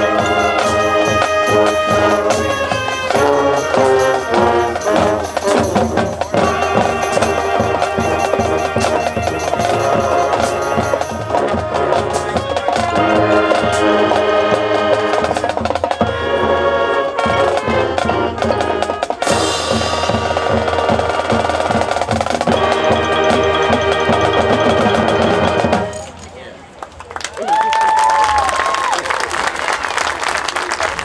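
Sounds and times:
marching band playing: 0.0 - 26.6.

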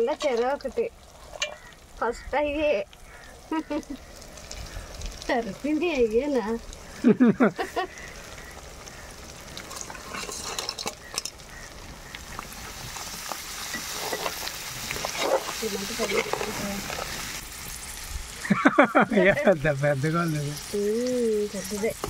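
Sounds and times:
metal spatula scraping pan: 0.0 - 1.6, 9.6 - 11.4, 13.5 - 17.2
food sizzling in oil: 0.0 - 22.0.

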